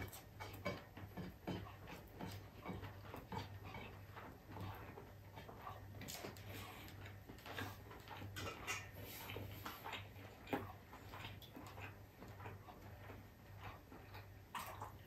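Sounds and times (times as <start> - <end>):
chewing and lip smacking: 3.2 - 15.0.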